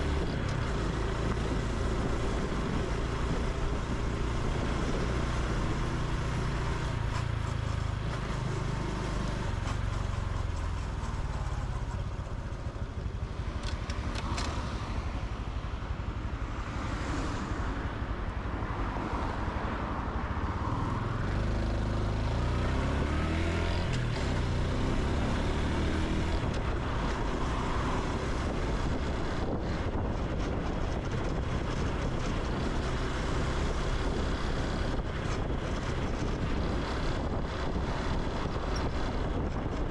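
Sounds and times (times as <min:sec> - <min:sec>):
road and air noise: 0:00.0 - 0:39.9
motorcycle engine revving: 0:21.8 - 0:29.9.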